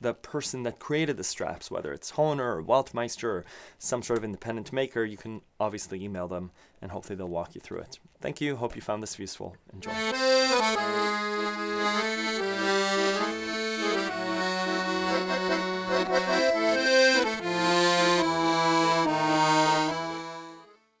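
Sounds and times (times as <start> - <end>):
accordion music: 9.8 - 21.0.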